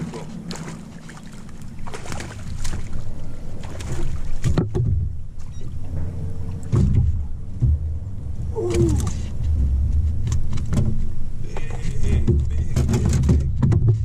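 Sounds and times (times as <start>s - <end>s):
water splashes: 0.0s - 13.8s
thumps on boat hull: 4.4s - 5.1s, 6.6s - 8.1s, 12.1s - 14.0s.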